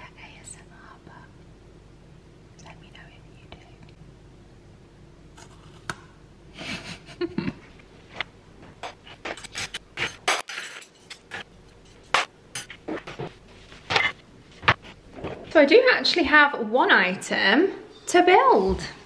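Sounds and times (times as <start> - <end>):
dishes and cutlery clinking: 9.2 - 13.3.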